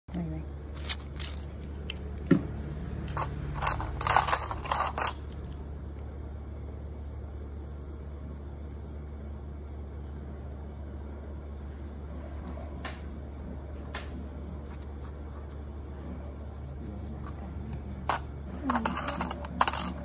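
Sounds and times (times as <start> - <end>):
steady low hum: 0.0 - 20.0
metal nail tools scraping and clicking: 3.1 - 5.6, 18.1 - 20.0.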